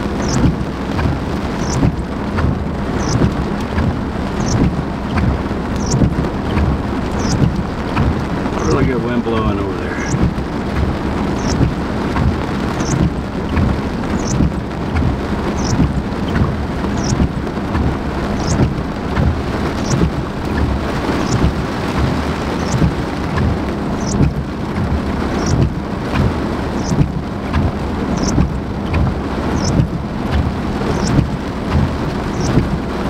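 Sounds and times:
heavy rain pouring: 0.0s - 33.0s
low rumble: 0.0s - 33.0s
wind tossing trees: 0.0s - 33.0s.

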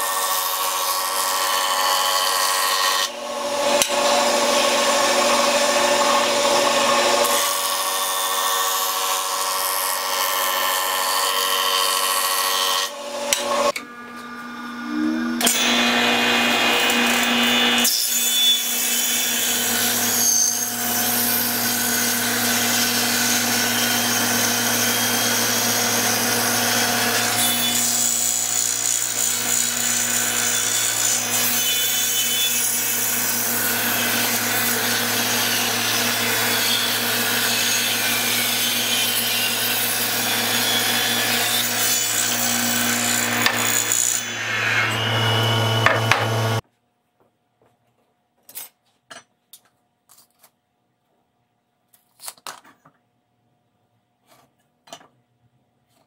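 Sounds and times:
saw blade cutting wood: 0.0s - 46.6s
table saw motor hum: 3.0s - 8.2s, 12.9s - 17.8s, 33.0s - 46.6s.

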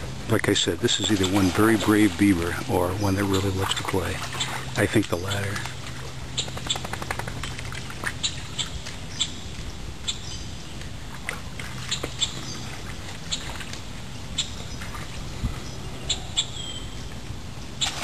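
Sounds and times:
steady low hum: 0.0s - 18.0s
birds calling and chirping: 0.4s - 18.0s.

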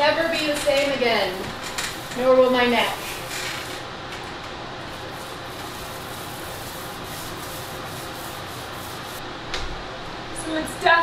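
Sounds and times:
paintbrush rubbing on ceiling: 0.0s - 3.9s, 4.8s - 9.2s.

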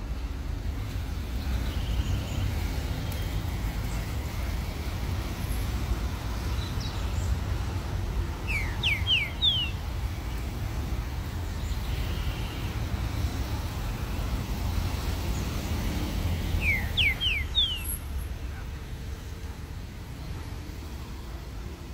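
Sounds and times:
bird whistling song: 8.4s - 9.8s, 16.6s - 18.0s.

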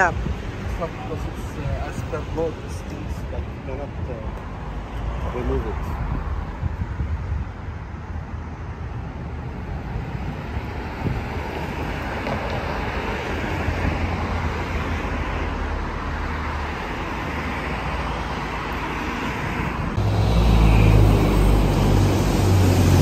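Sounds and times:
city street traffic: 0.0s - 23.0s
car passing close: 8.8s - 23.0s.

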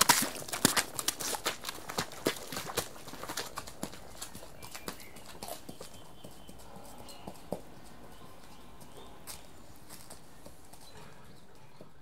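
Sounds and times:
horse hooves splashing in puddles: 0.0s - 6.8s.

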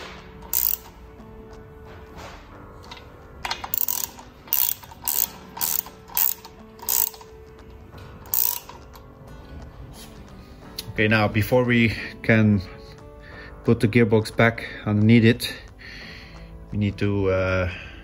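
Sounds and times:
ratchet wrench clicking: 0.4s - 1.0s, 2.9s - 7.4s, 8.2s - 9.0s.

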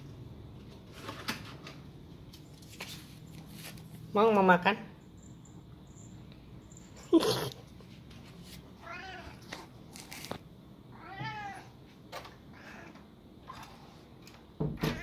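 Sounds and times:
cat meowing: 8.8s - 9.4s, 10.9s - 11.7s, 12.5s - 13.0s.

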